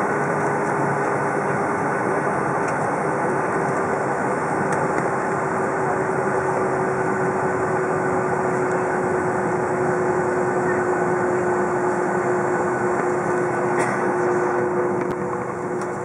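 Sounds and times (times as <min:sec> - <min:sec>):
jet engines roaring at taxi power: 0:00.0 - 0:16.0.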